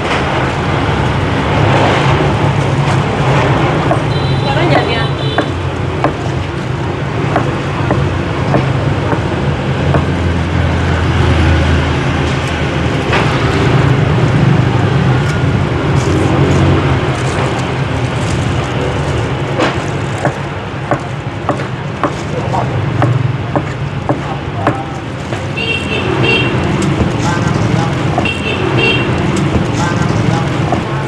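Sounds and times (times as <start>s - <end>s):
road traffic passing: 0.0s - 31.0s
sharp clicks and knocks: 5.4s - 10.4s, 16.9s - 25.6s.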